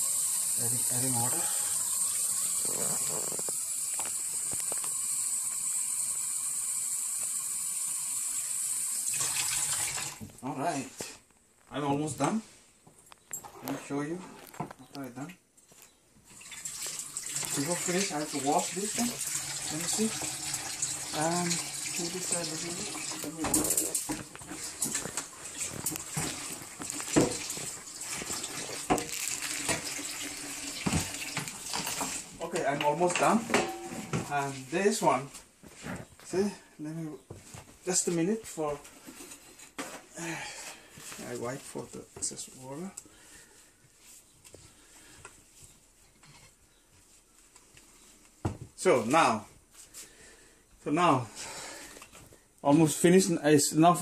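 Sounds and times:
tap water running into jar: 0.0s - 10.2s, 16.3s - 32.3s
glass clinking: 33.2s - 34.2s.

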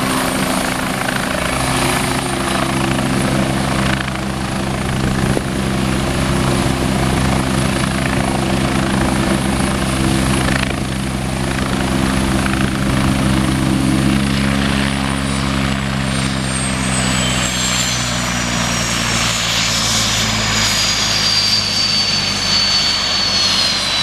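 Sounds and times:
helicopter turbine whine winding down: 0.0s - 24.0s
low rotor drone: 0.0s - 24.0s.

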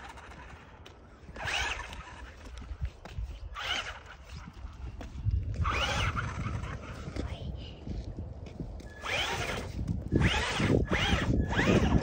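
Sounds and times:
small electric motor whining: 0.0s - 4.8s, 5.5s - 7.1s, 8.8s - 12.0s.

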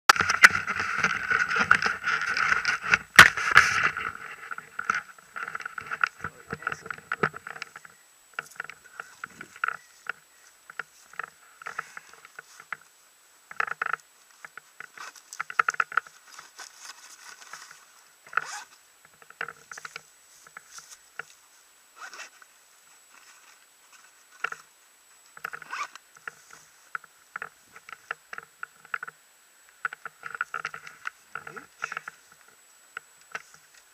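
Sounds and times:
harness straps rustling and scraping: 0.1s - 12.9s, 13.5s - 24.7s, 25.4s - 28.1s.

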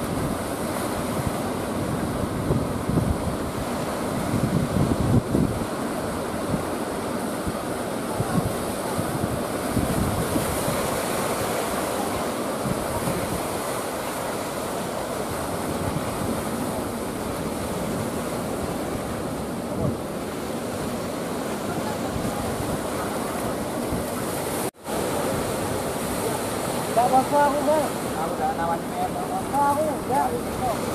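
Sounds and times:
ocean surf breaking: 0.0s - 30.9s
wind buffeting microphone: 0.0s - 30.9s.

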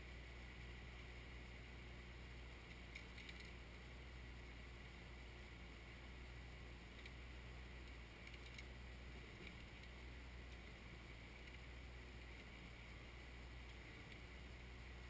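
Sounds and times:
faint tractor diesel engine running: 0.0s - 15.0s
light ticks: 6.9s - 7.2s, 7.8s - 8.8s, 9.4s - 12.6s, 13.6s - 14.3s.

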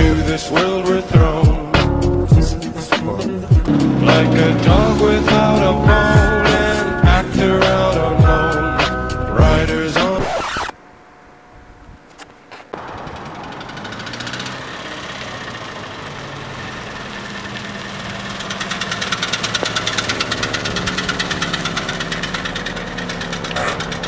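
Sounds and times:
car engine pulsing: 0.0s - 10.7s, 12.7s - 24.0s.

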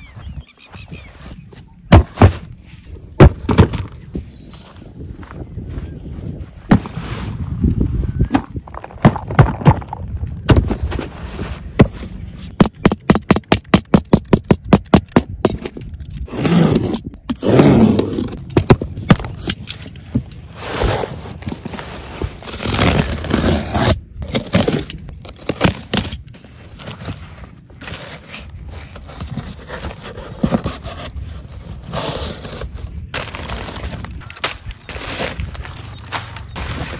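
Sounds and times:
packing tape and cardboard tearing: 13.1s - 19.8s, 20.5s - 35.6s.

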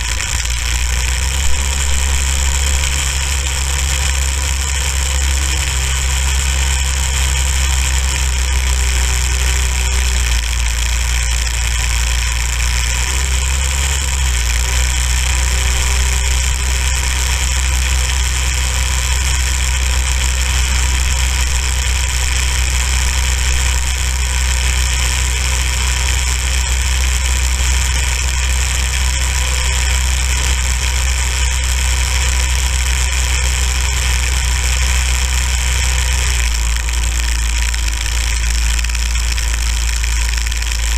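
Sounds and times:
go-kart engine running: 0.0s - 40.9s.

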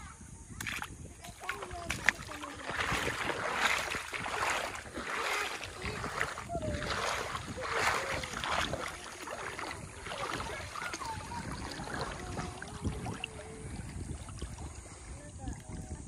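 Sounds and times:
water lapping and splashing: 0.6s - 16.0s.

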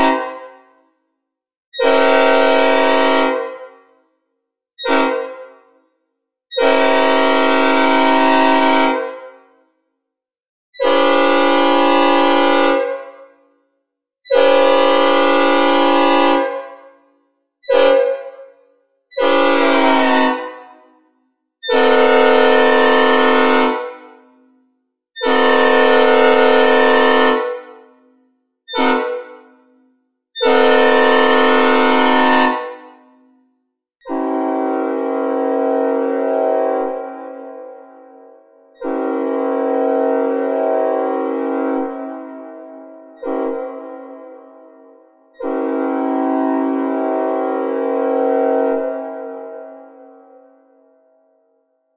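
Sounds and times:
synthesized air horn blasts: 0.0s - 0.7s, 1.8s - 3.8s, 4.8s - 5.8s, 6.5s - 9.4s, 10.8s - 13.2s, 14.3s - 16.8s, 17.6s - 18.4s, 19.1s - 20.9s, 21.6s - 24.6s, 25.2s - 28.1s, 28.7s - 29.8s, 30.4s - 33.4s, 34.0s - 50.7s.

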